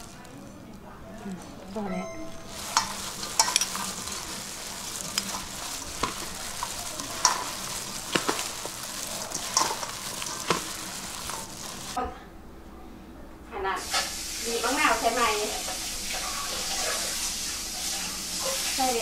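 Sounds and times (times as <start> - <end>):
wet rustling of food mixing: 0.0 - 12.0.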